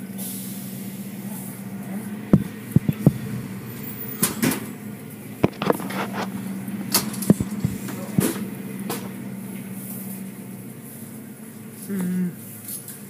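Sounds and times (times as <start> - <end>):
car wash machinery hum: 0.0 - 13.0
sharp knocks and slaps: 2.4 - 3.4, 7.2 - 8.4.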